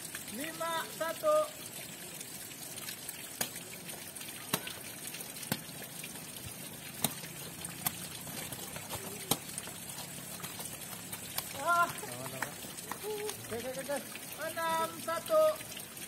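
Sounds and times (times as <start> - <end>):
ball being kicked: 6.9 - 9.8.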